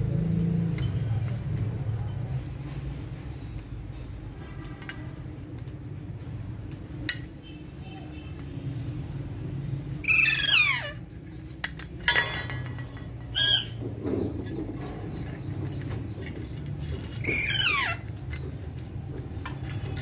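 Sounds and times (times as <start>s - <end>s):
parakeets squawking: 10.0s - 11.0s, 13.3s - 13.8s, 17.0s - 18.1s
steel bowls clinking on wire cage: 11.7s - 17.2s.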